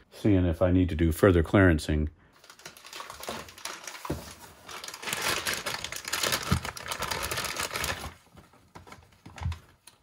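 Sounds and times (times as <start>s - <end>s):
plastic bag crinkling: 2.4s - 8.3s.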